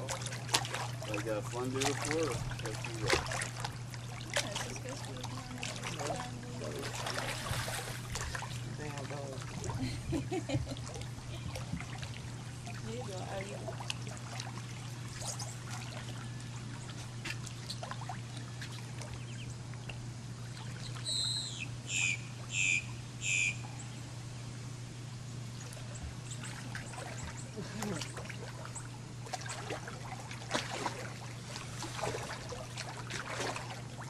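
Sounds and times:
pool water trickling and splashing: 0.0 - 34.0
steady low hum: 0.0 - 34.0
bird chirping: 20.7 - 24.1.

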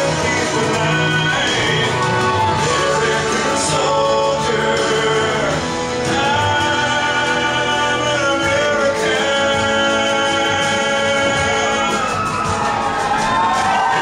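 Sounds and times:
music with singing: 0.0 - 14.0.

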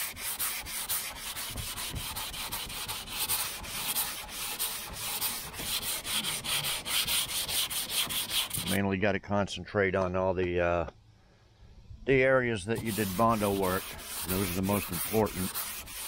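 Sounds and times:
sandpaper rubbing on metal: 0.0 - 8.8, 12.7 - 16.0.

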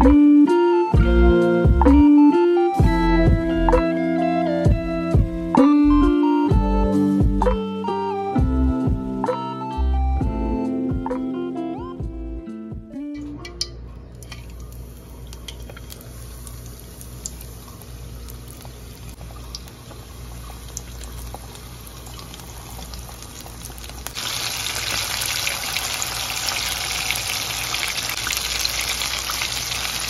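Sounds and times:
chicken deep-frying in oil: 13.6 - 30.0.

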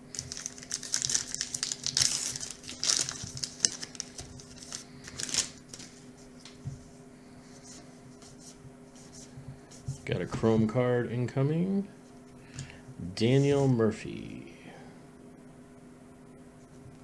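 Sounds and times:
card pack wrapper crinkling and tearing: 0.1 - 5.9.

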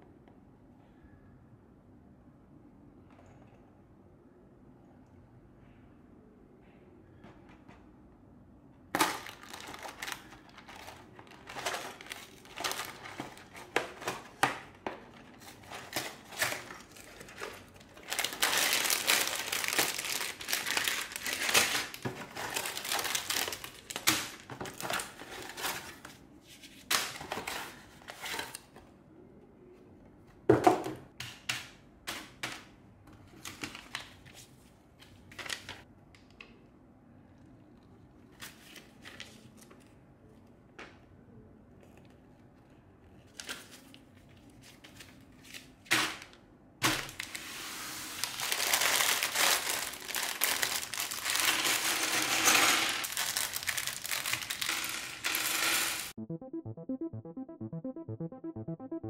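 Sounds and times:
plastic bags crinkling: 9.0 - 26.1, 46.8 - 47.5, 48.1 - 56.1
paper pages rustling: 9.2 - 24.0, 43.2 - 45.8.

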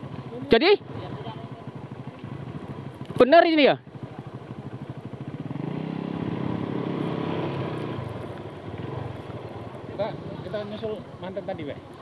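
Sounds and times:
small motorcycle engine: 0.0 - 11.8.

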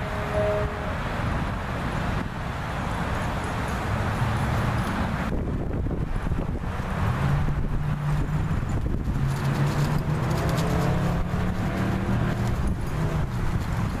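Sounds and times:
vehicle engine humming: 0.0 - 14.0
footsteps in dry leaves: 9.0 - 14.0.

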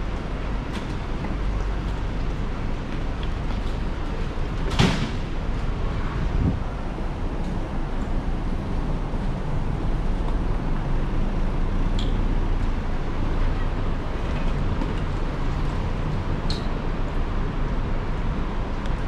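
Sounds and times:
road traffic rumble: 0.0 - 19.0.

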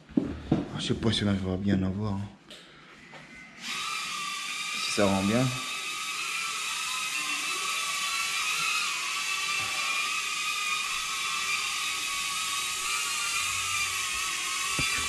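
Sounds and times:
drone propellers whining: 3.0 - 15.0.

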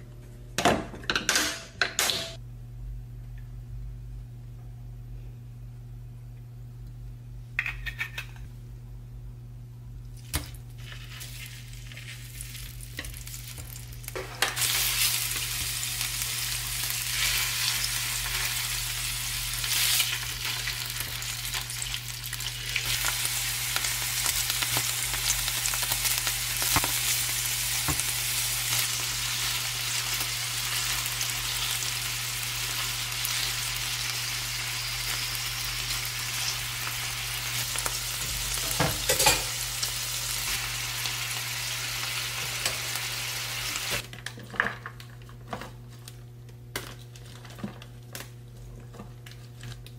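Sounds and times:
steak sizzling in a frying pan: 14.6 - 44.0.

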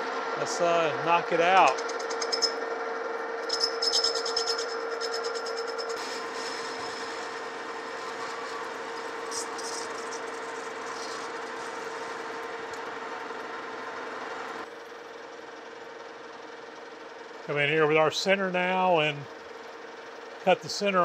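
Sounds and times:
metal lathe humming: 3.4 - 14.7.

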